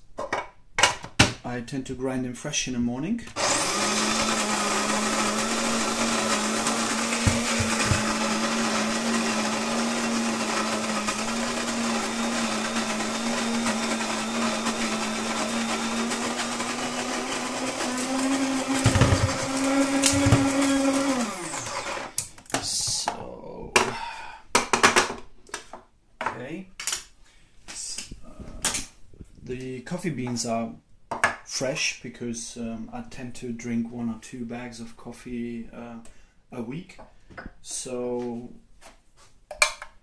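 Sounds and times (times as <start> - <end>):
electric coffee grinder running: 3.4 - 22.2.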